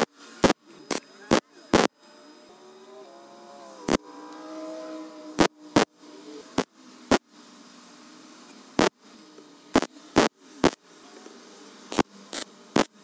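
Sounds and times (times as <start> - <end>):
welder crackling bursts: 0.0 - 1.9, 5.4 - 5.9, 8.8 - 9.0, 9.7 - 10.8, 11.9 - 13.0.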